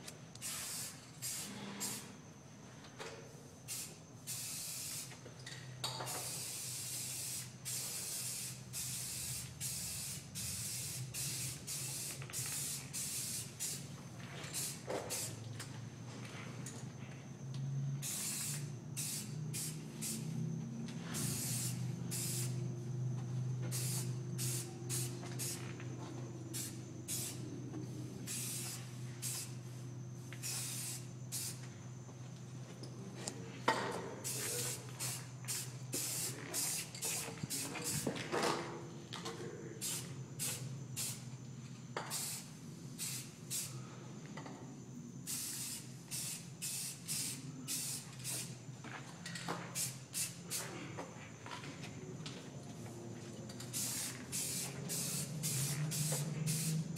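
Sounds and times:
spray can hissing: 0.4s - 2.0s, 3.7s - 5.1s, 6.2s - 13.8s, 18.0s - 20.2s, 21.2s - 22.6s, 23.7s - 25.6s, 26.6s - 27.4s, 28.3s - 29.5s, 30.4s - 31.6s, 34.3s - 38.0s, 39.8s - 41.2s, 42.1s - 43.7s, 45.3s - 48.5s, 53.7s - 56.9s.

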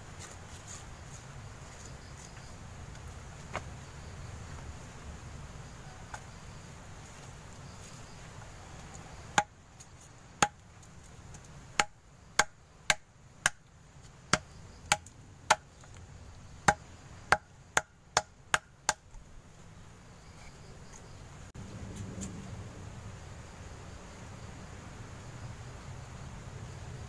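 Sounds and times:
wood chopping strikes: 11.3s - 13.6s, 14.3s - 15.7s, 16.6s - 19.2s.

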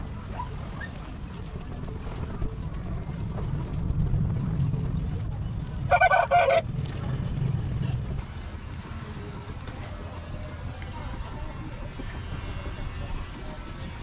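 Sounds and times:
low rumble of fanned fire: 0.0s - 14.0s
loud fowl honk: 5.9s - 6.6s.

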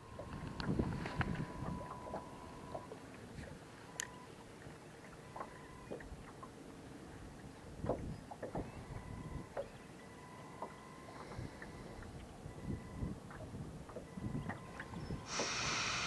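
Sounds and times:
water and wind noise: 0.0s - 16.0s
faint thin whine: 14.2s - 16.0s.

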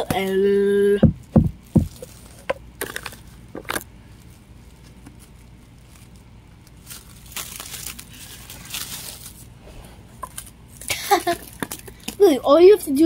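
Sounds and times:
aluminium foil crinkling: 1.5s - 9.6s, 10.3s - 12.5s.

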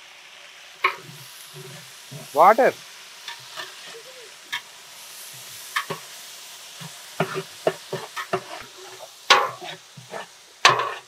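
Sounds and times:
steady sizzling hiss: 0.0s - 11.0s
spoon knocking and scraping pot: 0.8s - 2.3s, 5.8s - 6.0s, 6.8s - 11.0s.

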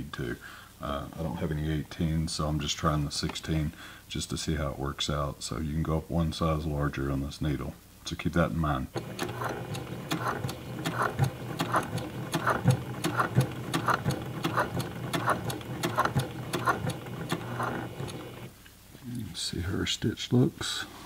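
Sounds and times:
sewing machine stitching: 9.0s - 18.5s.

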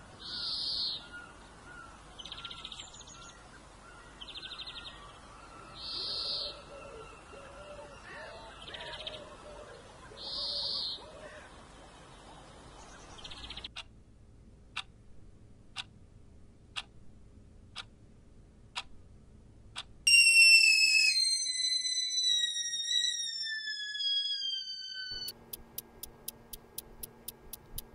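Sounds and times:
birds calling: 0.2s - 13.7s
stovetop kettle whistling: 20.1s - 25.4s
wall clock ticking: 25.2s - 27.9s.

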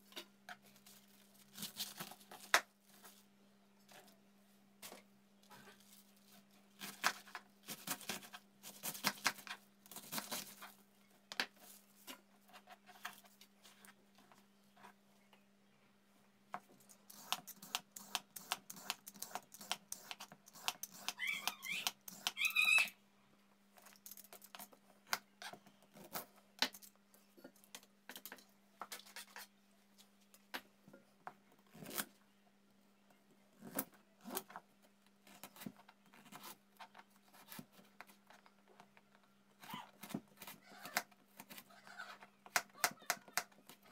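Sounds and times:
knife cutting carrot: 17.1s - 22.4s
vegetable peeler rasping carrot: 17.1s - 22.6s.

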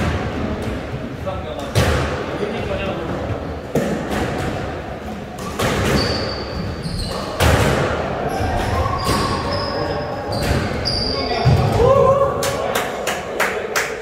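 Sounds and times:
shoes squeaking on wooden floor: 5.5s - 7.5s, 8.3s - 11.8s.

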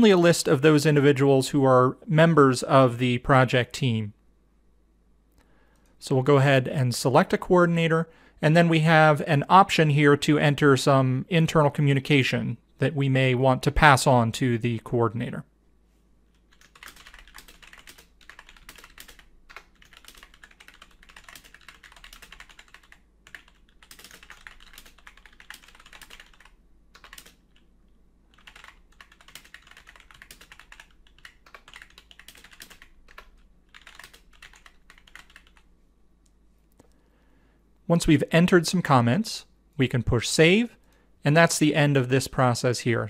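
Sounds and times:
computer keyboard typing: 16.3s - 27.7s, 28.3s - 35.7s.

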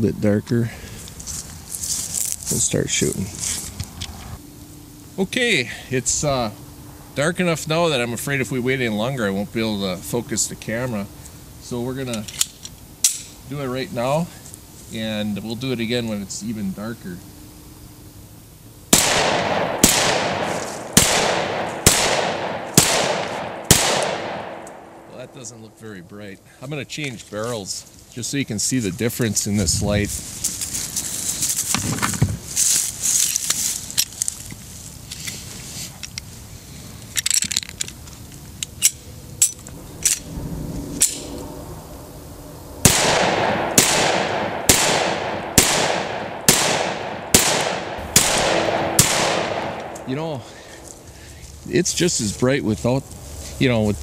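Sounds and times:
pistol shots: 18.9s - 25.3s, 42.8s - 50.1s.

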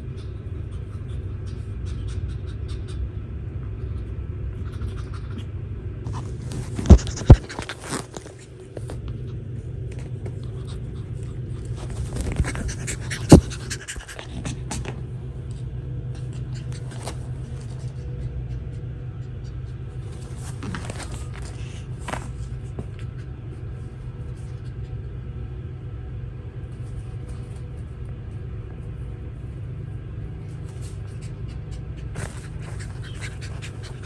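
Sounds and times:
puppy panting: 0.0s - 5.5s, 6.1s - 25.5s, 30.5s - 34.0s
steady low hum: 0.0s - 34.0s
rustling on fabric dog bed: 11.6s - 12.8s, 20.0s - 23.0s.

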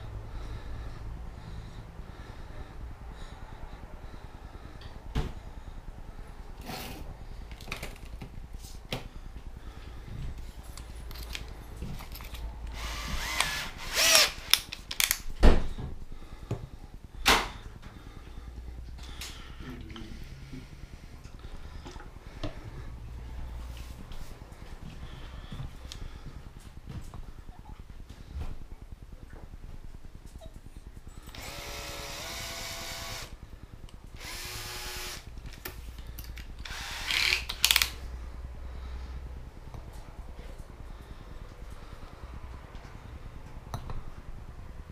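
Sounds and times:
cordless drill motor whirring: 12.7s - 15.2s, 31.3s - 33.4s, 34.2s - 35.3s, 36.6s - 38.0s.

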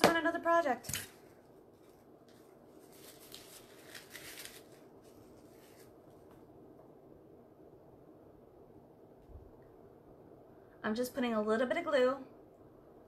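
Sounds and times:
rustling and snipping: 0.8s - 6.4s.

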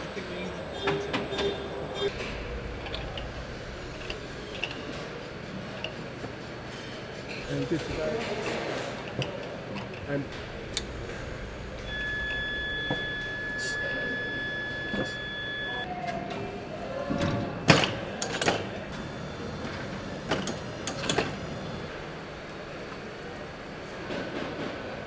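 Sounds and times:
high electronic tone: 10.3s - 15.9s.

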